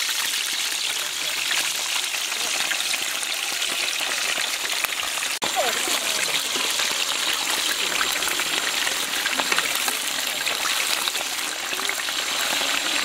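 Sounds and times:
hot oil sizzling and crackling: 0.0 - 13.0.

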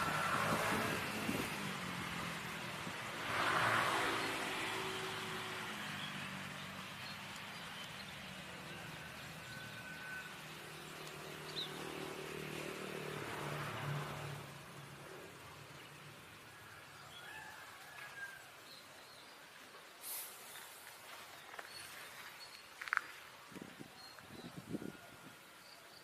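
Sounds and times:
vehicle engine hum: 0.0 - 17.0
car passing: 0.0 - 18.1.

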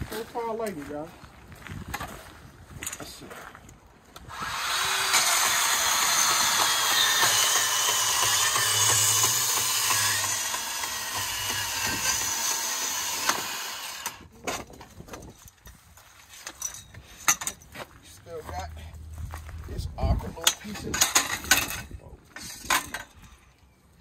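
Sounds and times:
bandsaw cutting metal: 4.2 - 14.3.

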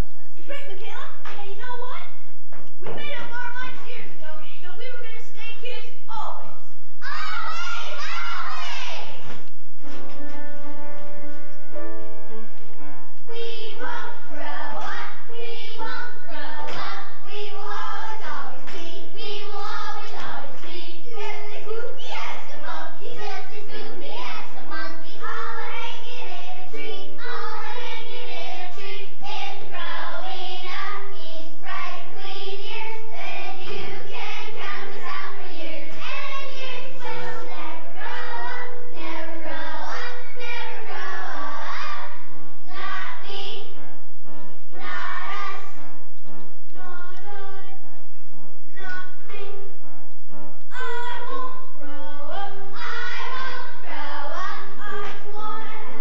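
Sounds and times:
children singing: 7.0 - 9.4, 13.3 - 43.8, 44.7 - 46.0, 46.8 - 47.8, 48.8 - 49.6, 50.7 - 56.0.

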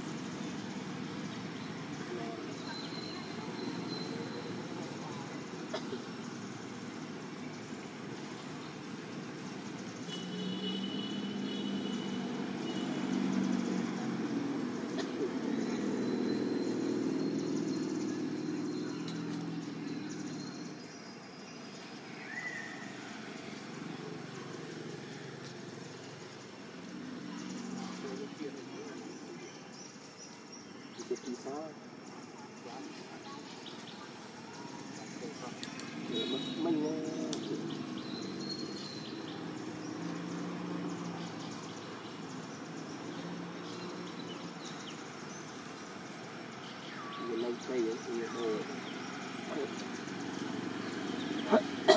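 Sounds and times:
faint high chirps and clicks: 35.5 - 36.0.

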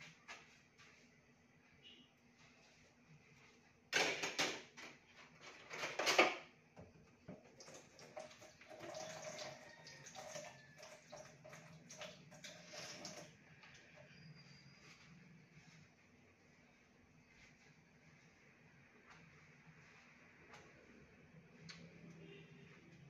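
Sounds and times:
tap water running: 7.2 - 13.4.

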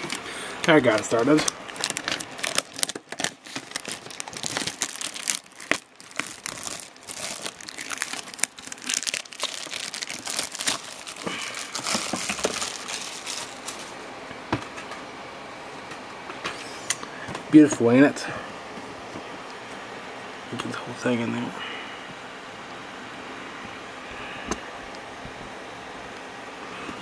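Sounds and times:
plastic wrap crinkling and tearing: 0.0 - 14.0.

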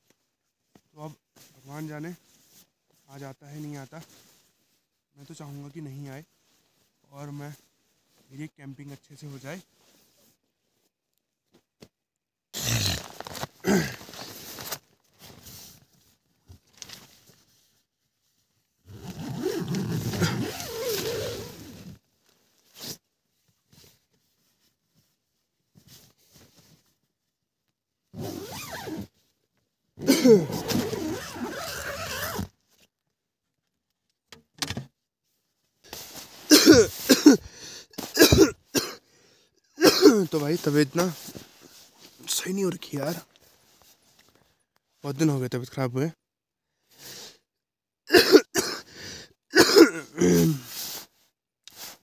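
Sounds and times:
tent zipper being pulled: 12.6 - 15.7, 18.9 - 22.1, 28.1 - 29.1, 30.0 - 32.5
man coughing: 13.6 - 14.0, 30.0 - 30.5, 36.5 - 39.0, 39.8 - 40.3, 48.1 - 48.9, 49.5 - 50.7.

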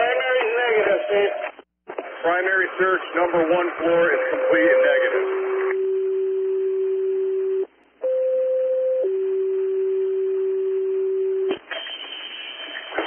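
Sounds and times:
radio hiss and crackle: 0.2 - 5.8, 11.5 - 13.0
radio alert tones: 3.4 - 6.1.

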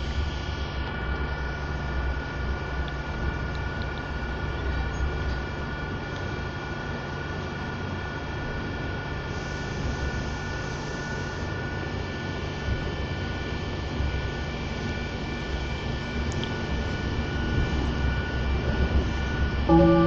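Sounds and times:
high whines: 19.7 - 20.0.

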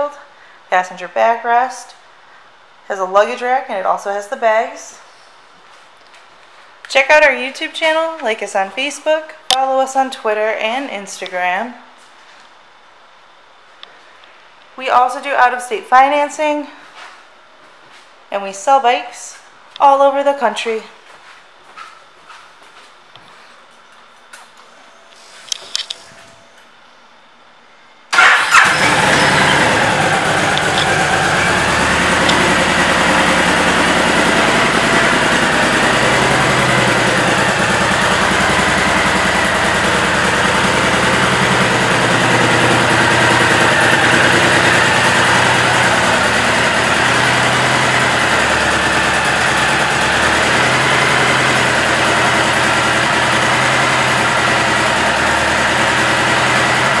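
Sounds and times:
motorcycle engine starting and idling: 28.1 - 57.0.

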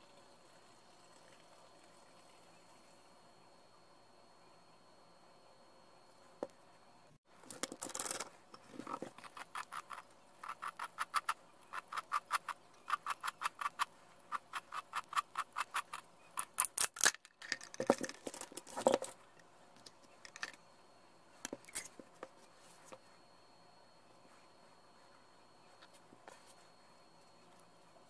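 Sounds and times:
metal parts knocking and scraping: 7.4 - 19.4, 20.2 - 20.6.

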